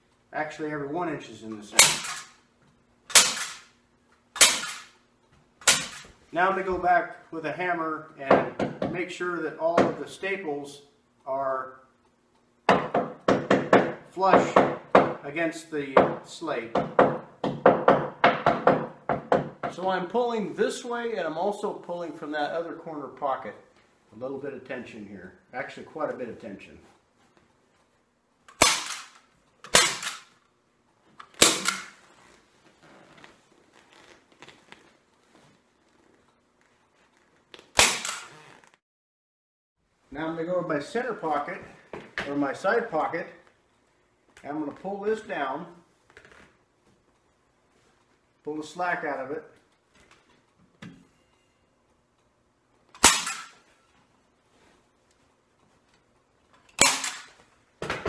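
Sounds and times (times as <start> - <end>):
staple gun firing: 1.8 - 2.3, 3.1 - 3.7, 4.4 - 4.9, 5.6 - 6.0, 28.5 - 30.3, 31.3 - 32.0, 37.8 - 38.3, 53.0 - 53.6, 56.8 - 57.4.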